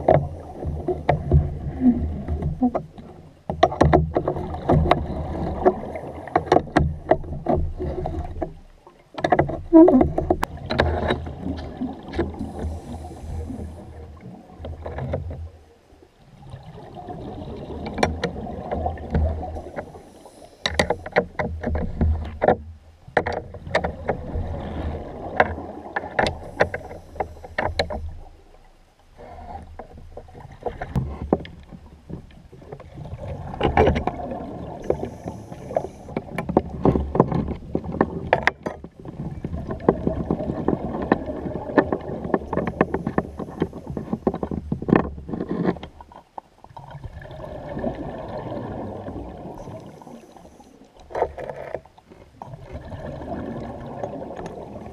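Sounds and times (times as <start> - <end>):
underwater bubbles rumbling: 0.0 - 20.4, 23.4 - 54.9
breathing regulator hissing: 12.4 - 13.8, 34.8 - 36.1.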